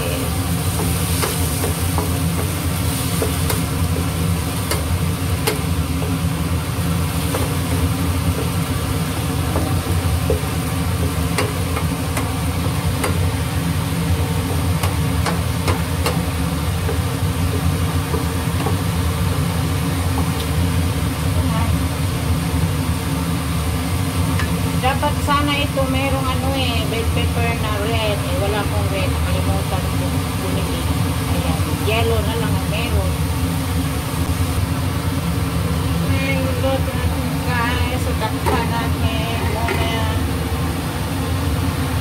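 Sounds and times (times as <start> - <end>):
kitchen exhaust fan humming: 0.0 - 42.0.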